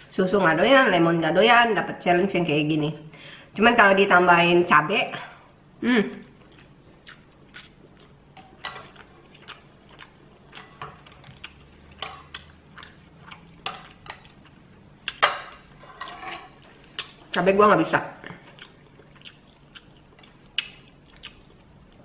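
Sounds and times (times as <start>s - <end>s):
person chewing noodles: 6.3s - 8.2s, 8.8s - 15.2s, 18.3s - 22.0s
wet mouth clicks and smacks: 18.6s - 21.4s.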